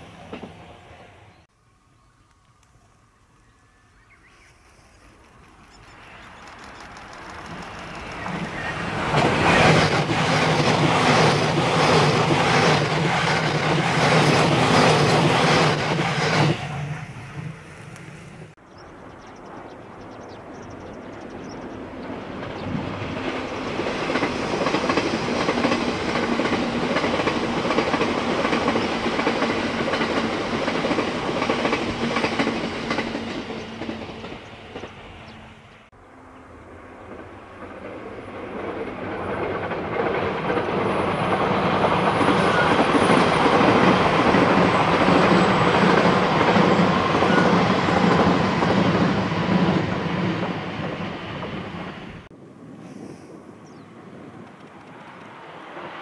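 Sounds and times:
low train hum: 0.0s - 56.0s
train wheels clacking over rail joints: 6.4s - 16.8s, 22.1s - 35.0s, 37.1s - 51.9s.

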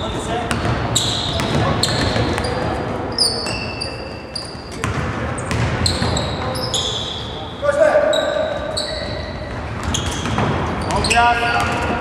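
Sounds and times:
background murmur: 0.0s - 12.0s
shoes squeaking on floor: 0.0s - 12.0s
basketball bouncing: 0.5s - 2.8s, 4.7s - 6.6s, 9.4s - 12.0s.

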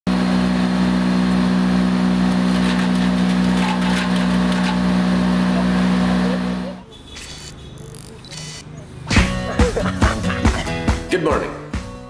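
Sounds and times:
wood chipper engine running: 0.1s - 6.8s.

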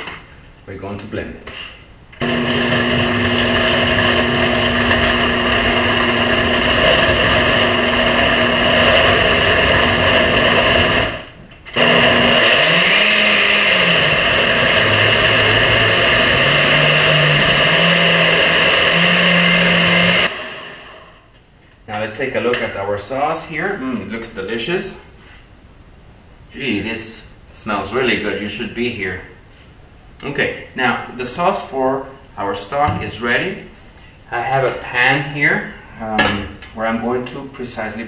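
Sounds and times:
blender running: 2.2s - 21.3s.

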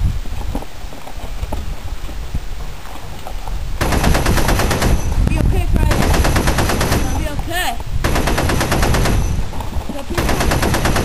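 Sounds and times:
wind rumble on microphone: 0.0s - 11.0s
rapid machine-gun fire: 3.8s - 5.1s, 5.9s - 7.2s, 8.0s - 9.4s, 10.2s - 11.0s.

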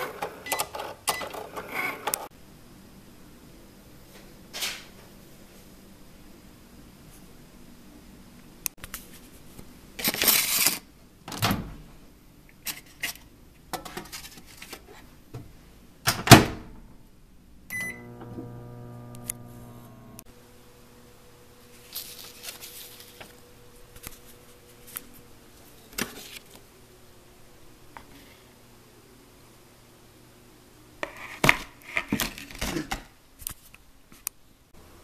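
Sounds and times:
keypad beep: 0.5s - 1.4s, 17.7s - 18.1s
clicks: 17.7s - 20.3s
microwave oven humming: 17.7s - 21.7s.

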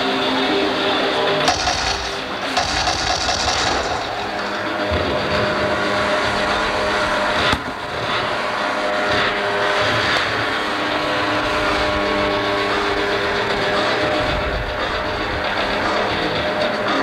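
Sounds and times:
speedboat engine at high speed: 0.0s - 17.0s
sharp bang: 1.5s - 5.4s.

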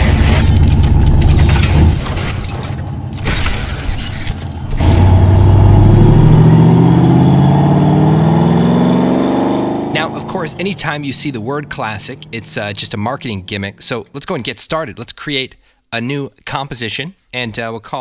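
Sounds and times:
car engine accelerating: 4.6s - 13.9s.

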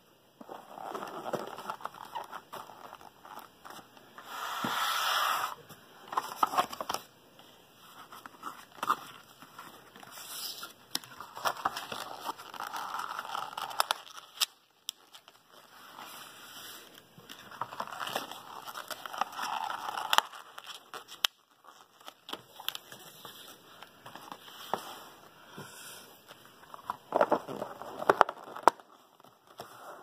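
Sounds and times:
paperboard rustling and sliding: 4.2s - 7.0s.

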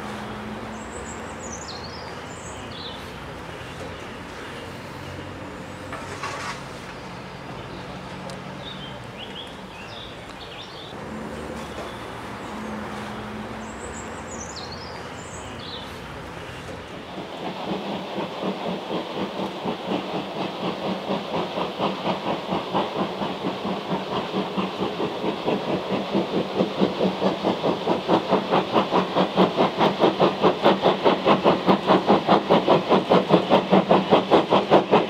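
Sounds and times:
steam locomotive simmering: 0.0s - 35.0s
songbird singing: 0.7s - 5.9s, 6.9s - 11.0s, 11.6s - 17.2s.

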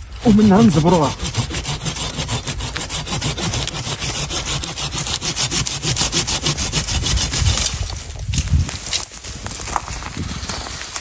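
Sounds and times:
saw cutting a branch: 0.0s - 8.2s.

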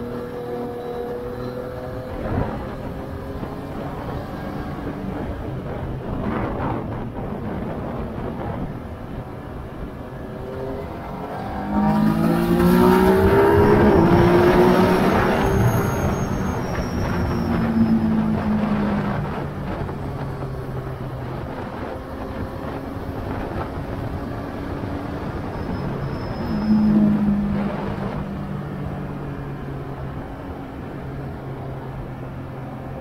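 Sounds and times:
motorcycle engine revving: 10.1s - 29.0s.

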